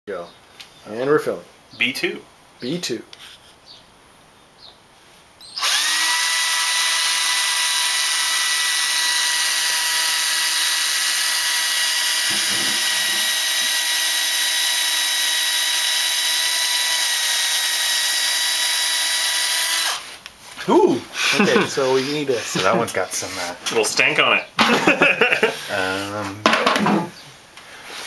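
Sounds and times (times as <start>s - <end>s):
cordless drill boring into wood: 5.4s - 20.2s.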